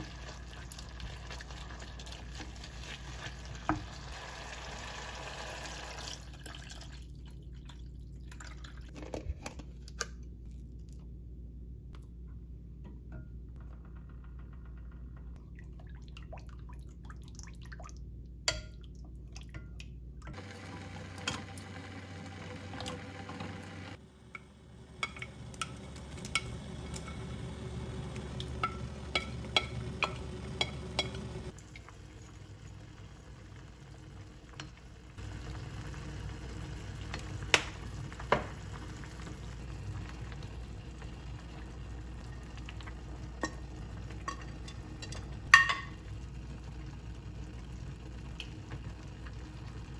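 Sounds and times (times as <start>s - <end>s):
stew bubbling in a pot: 0.0s - 8.9s, 24.0s - 49.9s.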